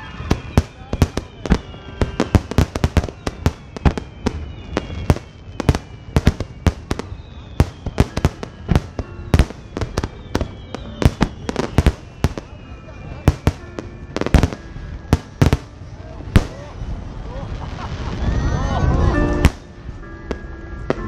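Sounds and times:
continuous firework rumble: 0:00.0 - 0:21.0
firework booms and cracks: 0:00.2 - 0:12.6, 0:13.2 - 0:16.7.

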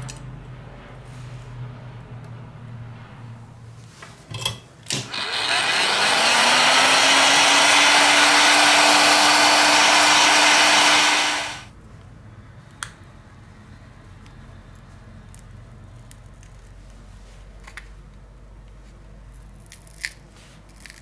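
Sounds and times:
hot-air blower fan whining: 0:00.0 - 0:11.8.

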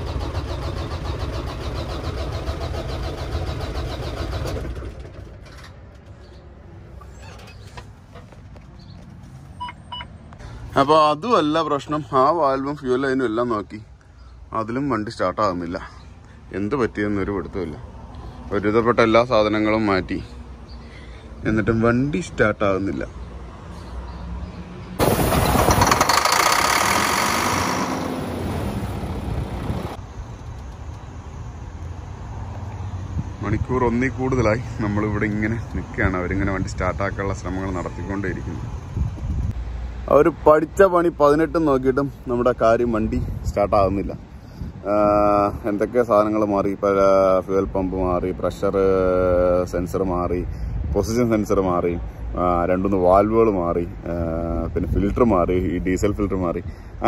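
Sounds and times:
diesel engine cranking: 0:00.0 - 0:06.4, 0:25.0 - 0:31.6.

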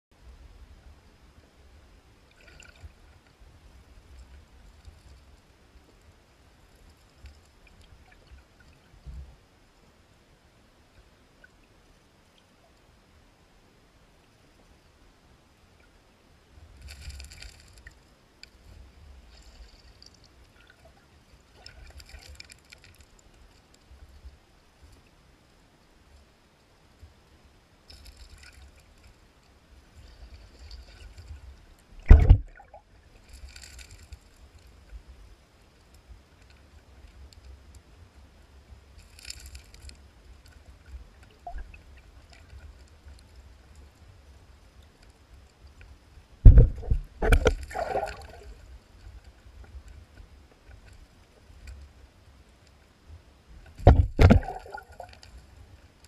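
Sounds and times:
aquarium water gurgling: 0:32.0 - 0:32.7
loud thump: 0:32.1 - 0:32.5, 0:46.4 - 0:47.5, 0:53.8 - 0:54.5
low rumble: 0:46.4 - 0:47.5.

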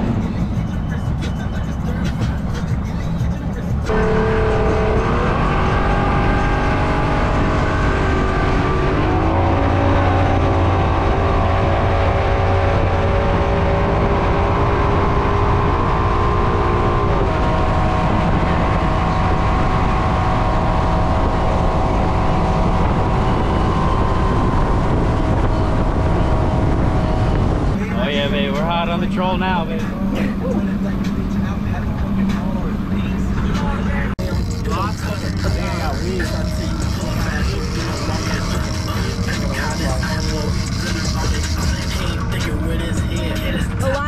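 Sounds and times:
rush of wind and water: 0:06.0 - 0:28.4
outboard motor running: 0:19.2 - 0:44.0.

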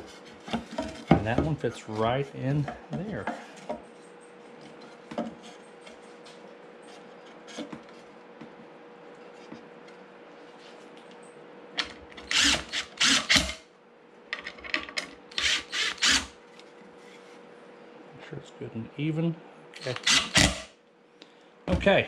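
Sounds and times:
drill driving screws into wood: 0:12.2 - 0:13.6, 0:15.3 - 0:16.4, 0:19.8 - 0:20.7.

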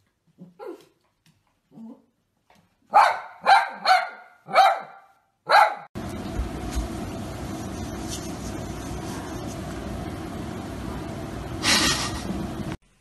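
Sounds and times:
small dog barking: 0:02.9 - 0:05.9.

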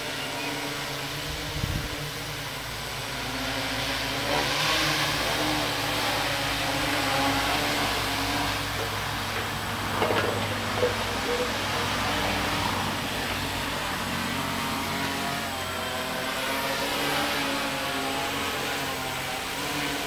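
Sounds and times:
drone propellers droning: 0:00.0 - 0:20.0.

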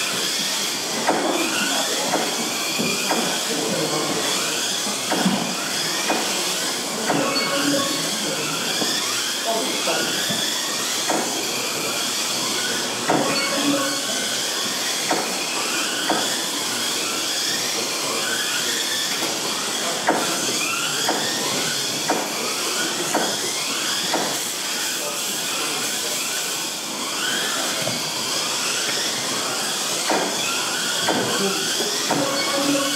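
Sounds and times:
electric motors whining: 0:00.0 - 0:32.9.

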